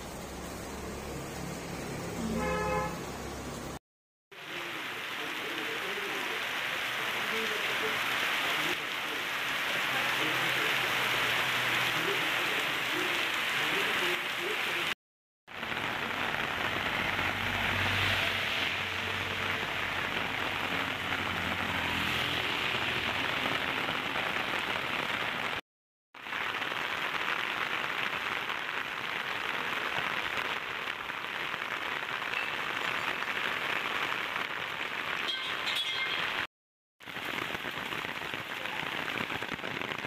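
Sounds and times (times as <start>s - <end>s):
heavy rain on pavement: 0.0s - 25.6s, 26.2s - 40.0s
truck passing: 16.7s - 23.5s.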